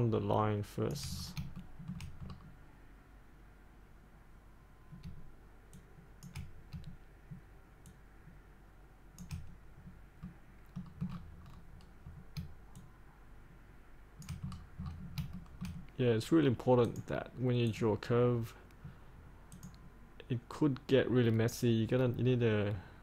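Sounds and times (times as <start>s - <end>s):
computer mouse clicks: 0.9s - 2.6s, 4.9s - 8.0s, 9.2s - 12.9s, 14.2s - 16.0s, 19.5s - 19.8s.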